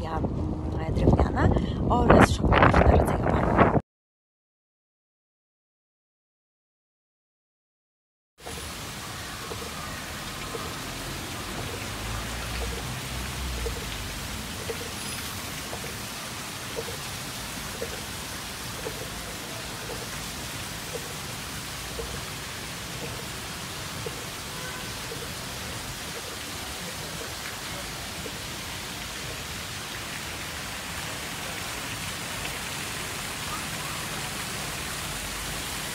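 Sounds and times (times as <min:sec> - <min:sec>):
steady outdoor hiss: 0:08.4 - 0:35.9.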